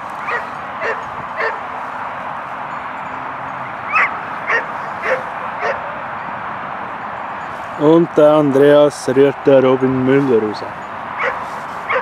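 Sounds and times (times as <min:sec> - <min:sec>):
animal calling: 0:00.2 - 0:01.6, 0:03.6 - 0:06.0, 0:11.2 - 0:12.0.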